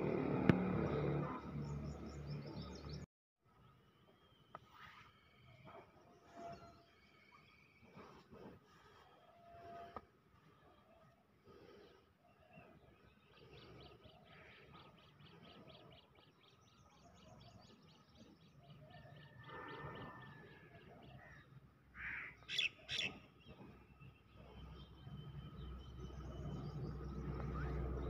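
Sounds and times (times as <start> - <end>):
harsh bird calls: 18.6 - 25.2.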